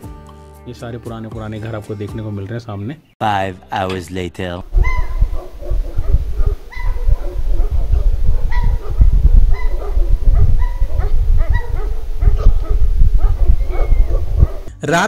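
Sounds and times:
heavy low rumble: 4.7s - 14.7s
dogs barking: 4.8s - 14.7s.

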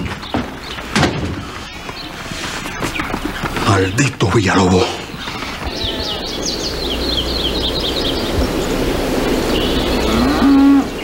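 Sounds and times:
birds chirping: 0.0s - 11.0s
outdoor hiss: 0.0s - 11.0s
cow mooing: 10.0s - 11.0s.

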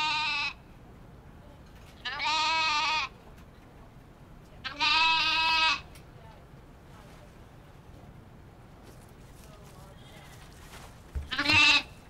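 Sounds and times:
sheep bleating: 0.0s - 0.6s, 2.1s - 3.1s, 4.7s - 5.8s, 11.3s - 11.9s.

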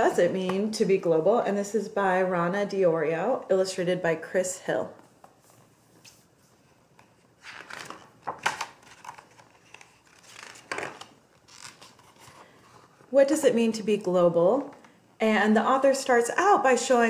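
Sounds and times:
book pages turning: 5.2s - 13.1s.

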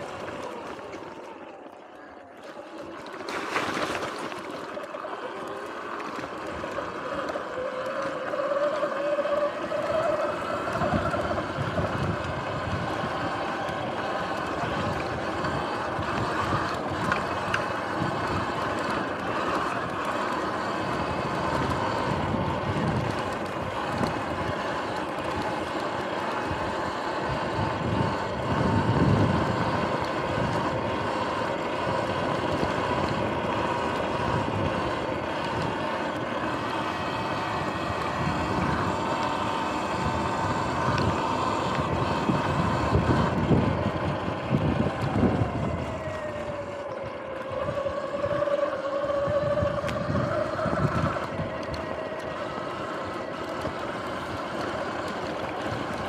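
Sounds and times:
electric motor whine: 0.0s - 56.0s
wind on microphone: 10.6s - 18.8s, 26.5s - 36.0s, 39.9s - 52.2s.

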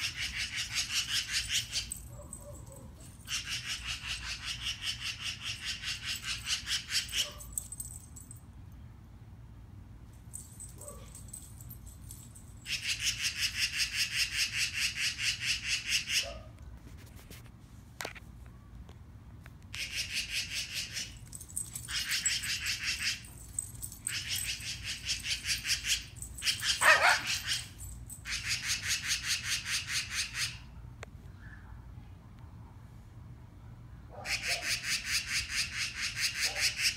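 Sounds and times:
magpie chattering call: 0.0s - 1.9s, 3.3s - 7.2s, 12.7s - 16.2s, 24.1s - 30.6s.

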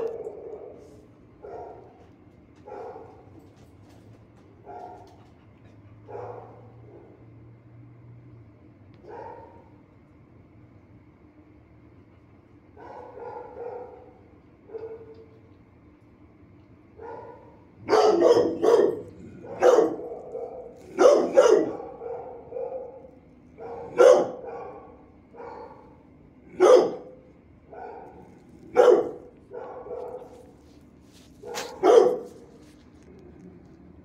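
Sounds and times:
dogs barking with echo: 0.0s - 2.0s, 6.0s - 7.2s, 12.8s - 15.2s, 17.0s - 30.6s, 31.4s - 32.5s.

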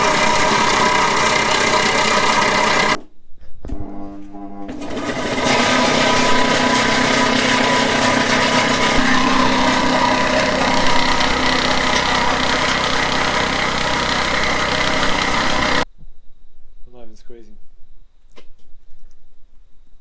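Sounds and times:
electric motor hum: 0.0s - 3.0s, 3.7s - 15.8s.

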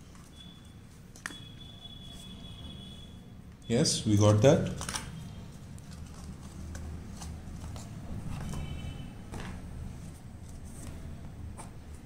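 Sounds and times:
knocks and paper rustles: 5.8s - 11.8s.

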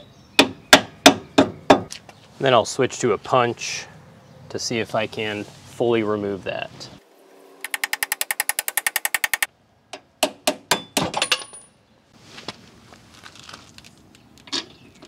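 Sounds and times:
sharp metal knocks and clinks: 10.7s - 11.8s.

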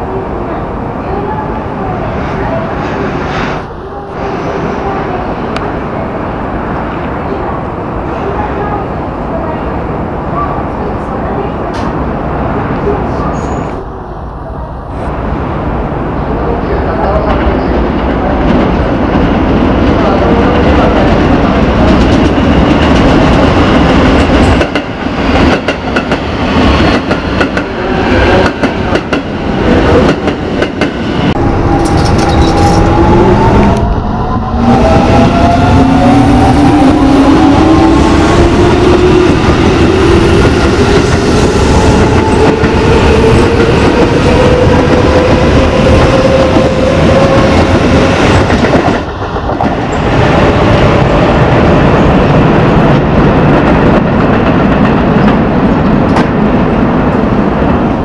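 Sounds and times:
train wheels clattering on rails: 17.0s - 31.1s, 38.0s - 51.6s, 52.2s - 58.0s.

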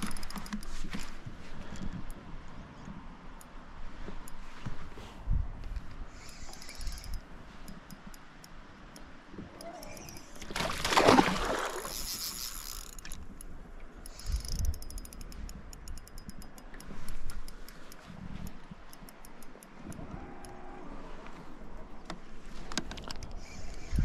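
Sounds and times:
fishing reel ticking: 0.0s - 0.8s, 6.1s - 10.4s, 11.8s - 20.6s, 23.2s - 24.0s.

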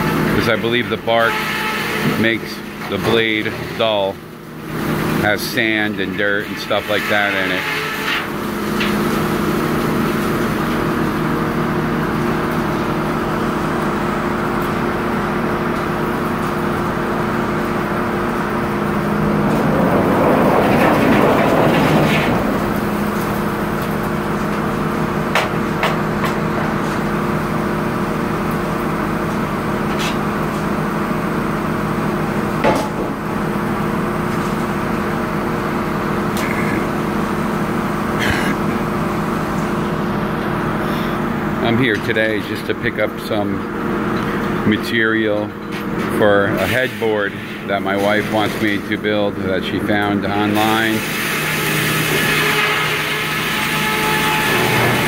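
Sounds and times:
sawmill machinery humming: 0.0s - 55.0s
loud rasping noise: 0.3s - 3.0s, 6.2s - 8.4s, 50.7s - 55.0s.

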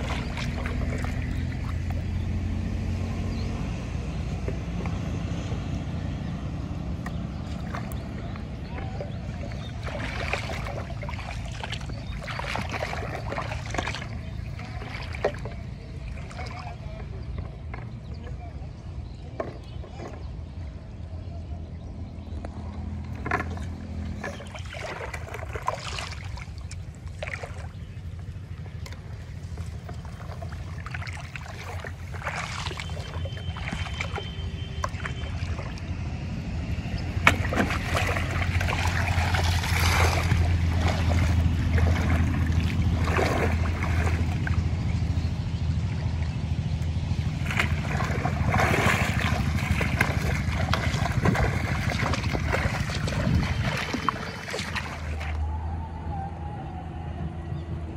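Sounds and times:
water pouring from a bottle: 0.0s - 2.2s, 9.3s - 16.7s, 28.9s - 35.9s, 37.2s - 44.6s, 47.4s - 55.4s
steady low rumble: 0.0s - 19.4s, 20.5s - 57.9s
water splashing and sloshing: 0.0s - 21.0s, 22.1s - 56.2s.

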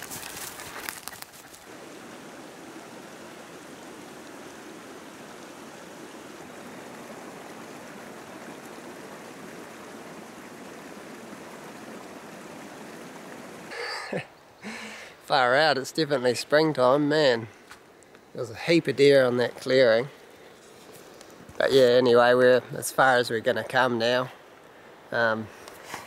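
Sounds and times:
river rushing: 0.0s - 15.8s.

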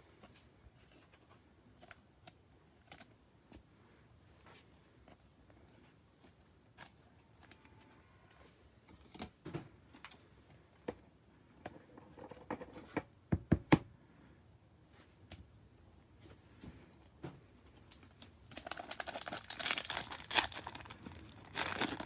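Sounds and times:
cards rustling: 18.0s - 22.0s.

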